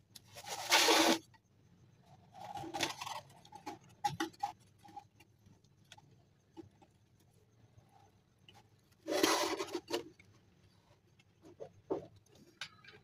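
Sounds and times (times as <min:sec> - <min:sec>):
cardboard rustling and scraping: 0:00.3 - 0:01.3, 0:09.0 - 0:10.2.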